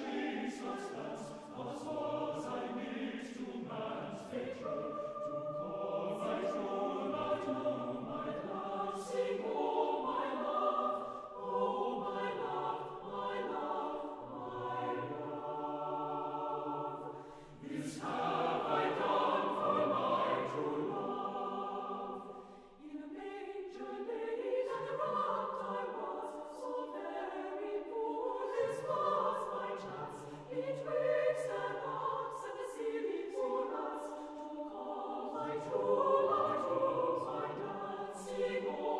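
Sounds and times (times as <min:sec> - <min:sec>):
choir singing slow chords: 0:00.0 - 0:38.9.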